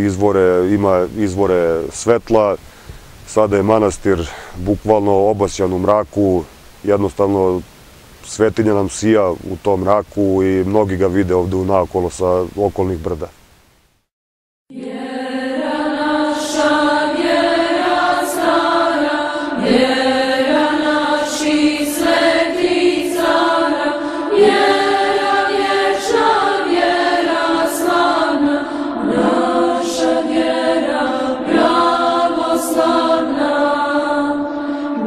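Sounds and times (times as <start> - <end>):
several voices chanting: 14.7 - 35.0.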